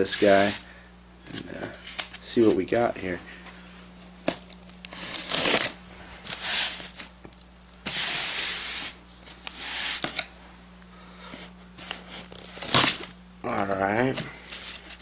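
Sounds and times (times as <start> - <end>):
tape ripping: 4.3 - 7.1, 11.8 - 13.2
knife slitting packing tape: 4.9 - 7.1, 7.8 - 9.0, 11.8 - 13.1.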